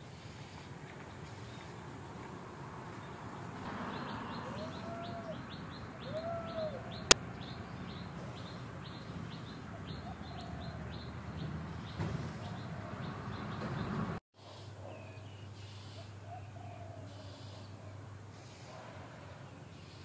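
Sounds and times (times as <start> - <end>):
birds chirping: 0.0 - 20.0
lower rising and falling bird calls: 3.0 - 14.0.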